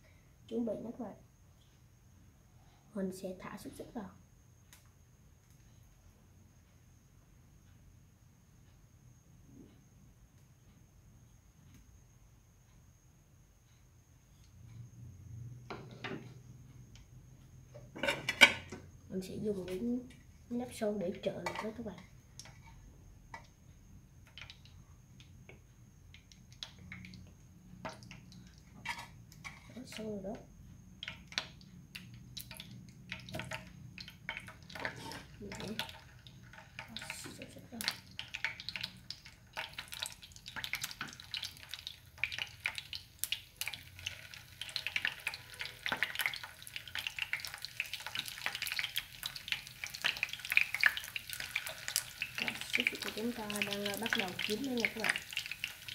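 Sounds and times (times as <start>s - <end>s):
oil spitting in frying pan: 20.7s - 23.5s, 31.0s - 55.9s.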